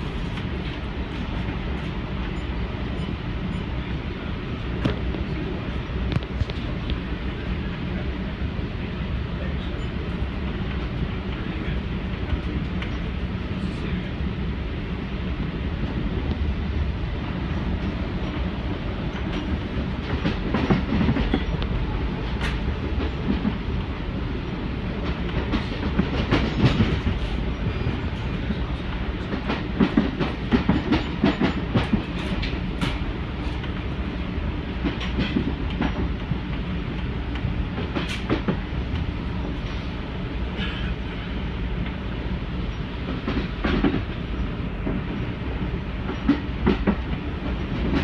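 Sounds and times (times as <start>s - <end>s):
train low rumble: 0.0s - 48.0s
wheels clattering on track: 34.8s - 36.6s.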